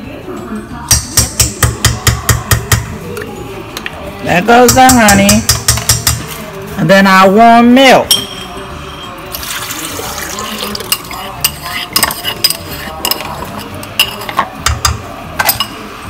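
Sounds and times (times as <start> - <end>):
milk pouring into metal bowl: 9.3 - 11.4.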